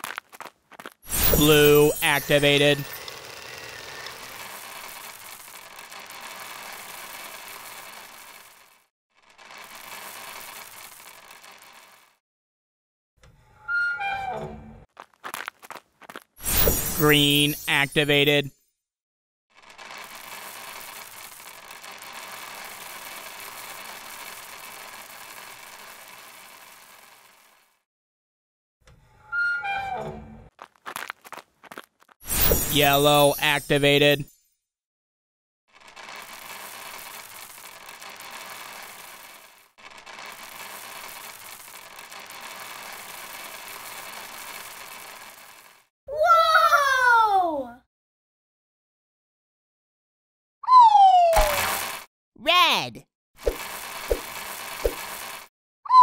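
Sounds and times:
plastic balls clattering: 0:00.0 - 0:12.2, 0:19.6 - 0:27.6, 0:35.7 - 0:45.9, 0:51.4 - 0:52.1, 0:53.4 - 0:55.5.

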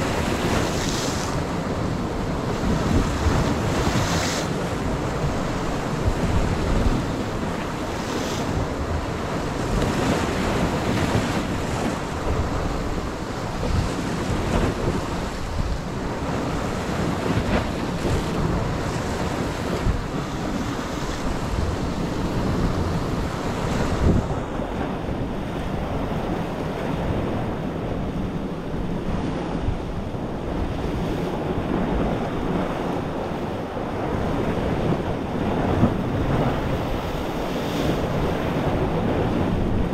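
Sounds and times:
sea waves breaking on rocks: 0:00.0 - 0:39.9
wind buffeting microphone: 0:00.0 - 0:39.9.

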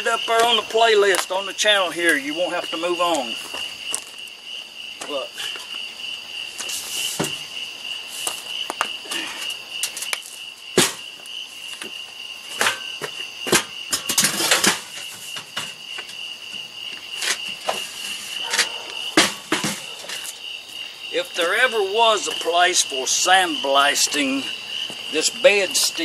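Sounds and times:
night insects chorus: 0:00.0 - 0:26.0
rustling scrape: 0:06.6 - 0:07.3
knocks and clatters of handling: 0:12.5 - 0:16.2, 0:17.2 - 0:20.4.

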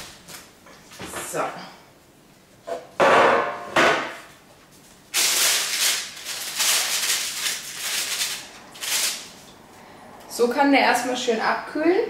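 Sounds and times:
baking paper rustling: 0:04.2 - 0:09.6.

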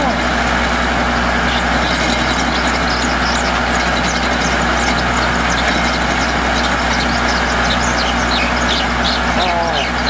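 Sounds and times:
drilling rig engine idling: 0:00.0 - 0:10.0.

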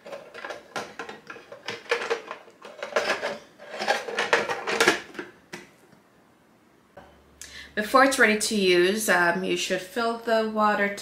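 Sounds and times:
plastic lid knocking and rattling: 0:00.0 - 0:05.6.

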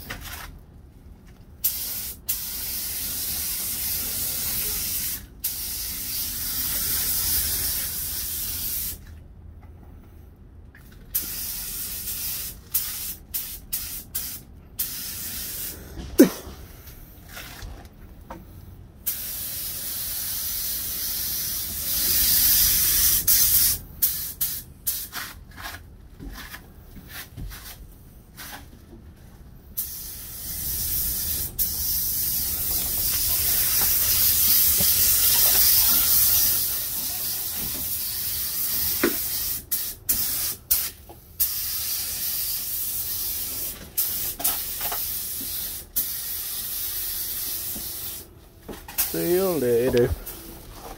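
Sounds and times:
paint spray gun hissing: 0:29.8 - 0:37.3.

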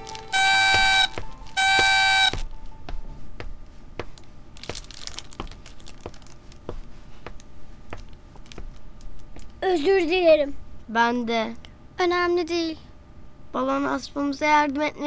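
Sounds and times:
party horn honk: 0:00.0 - 0:02.4
footsteps: 0:00.0 - 0:09.6.

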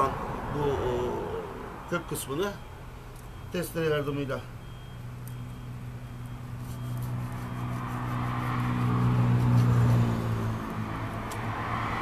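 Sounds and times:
vehicle engine passing by: 0:06.9 - 0:12.0.

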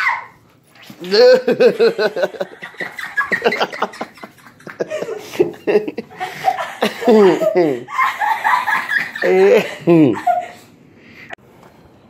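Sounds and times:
people laughing hard: 0:01.0 - 0:10.7.

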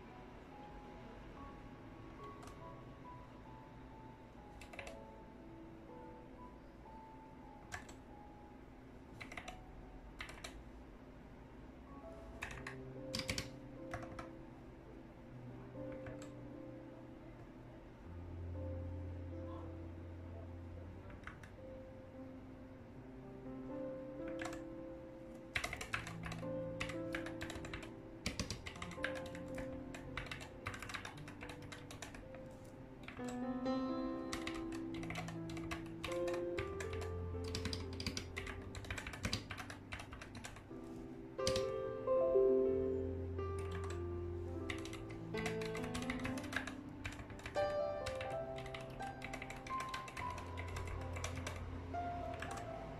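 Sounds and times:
quiet background music: 0:00.0 - 0:52.9
keyboard keys clacking: 0:02.2 - 0:08.5, 0:09.1 - 0:10.6, 0:12.1 - 0:14.5, 0:15.8 - 0:16.7, 0:23.8 - 0:52.9.

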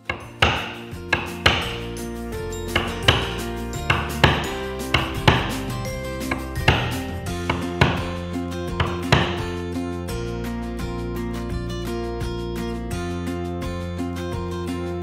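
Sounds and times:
mallet knocking on caulking iron: 0:00.0 - 0:01.9, 0:02.7 - 0:08.2, 0:08.8 - 0:09.5
background music sustained tones: 0:00.0 - 0:15.0.

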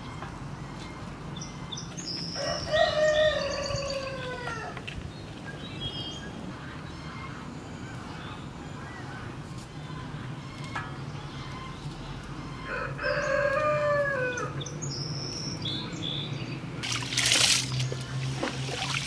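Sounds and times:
small birds chirping: 0:00.0 - 0:04.3, 0:14.3 - 0:18.3
rooster crowing: 0:02.4 - 0:04.8, 0:12.6 - 0:14.6.

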